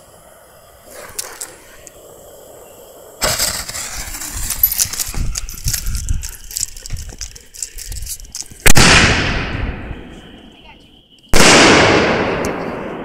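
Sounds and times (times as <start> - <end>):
firework fuse crackling hiss: 0.0 - 10.3.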